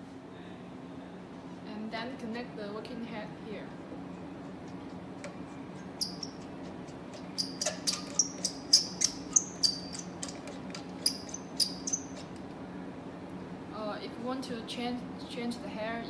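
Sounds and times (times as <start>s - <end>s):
low steady hum: 0.0s - 16.0s
short high-pitched squeaks: 6.0s - 12.3s.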